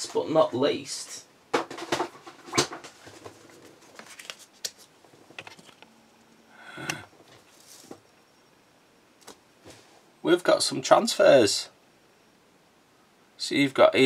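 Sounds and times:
paper clicks and rustles: 2.5s - 5.9s.

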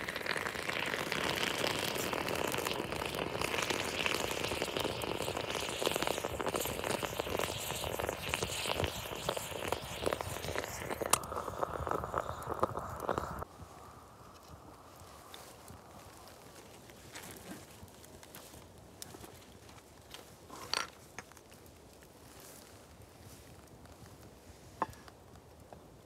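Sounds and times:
moka pot gurgling and sputtering: 0.0s - 13.5s
wood fire crackling: 0.0s - 24.3s.

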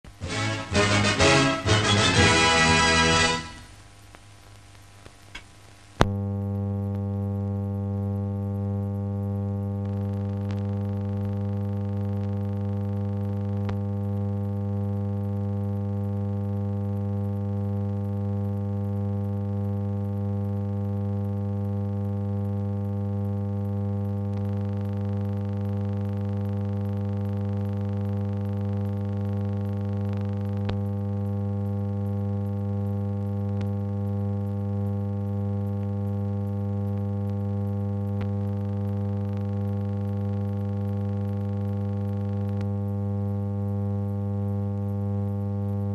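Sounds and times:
buzzy electrical mains hum: 0.1s - 45.9s
click: 4.1s - 6.2s, 9.8s - 10.8s, 30.1s - 30.8s, 38.2s - 38.4s, 42.4s - 42.7s.

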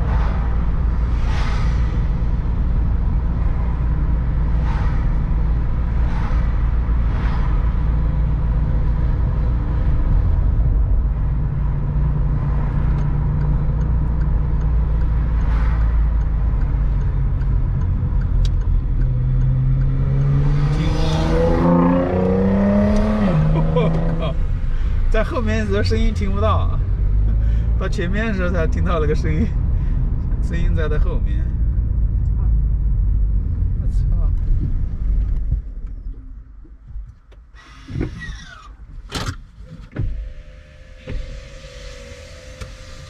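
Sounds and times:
cars swishing past: 0.0s - 10.0s, 14.7s - 17.4s, 19.2s - 29.4s
car cabin road rumble: 0.0s - 43.0s
sports car overtaking: 11.3s - 26.2s, 37.5s - 43.0s.

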